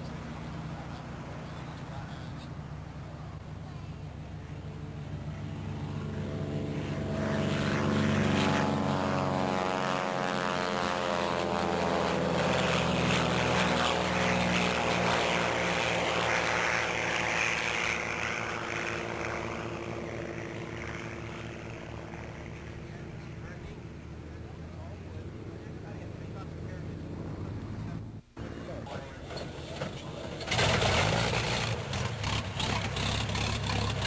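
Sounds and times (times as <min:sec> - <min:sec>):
propeller aircraft flying past: 0:00.0 - 0:34.0.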